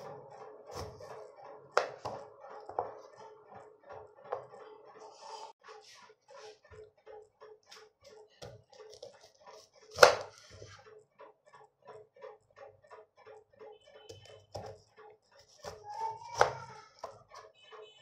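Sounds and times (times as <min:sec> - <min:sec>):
knife cutting onion on board: 0:00.0 - 0:03.4, 0:07.7 - 0:10.8, 0:14.0 - 0:14.8, 0:15.4 - 0:17.5
steady ticking beat: 0:00.0 - 0:05.0, 0:10.8 - 0:18.0.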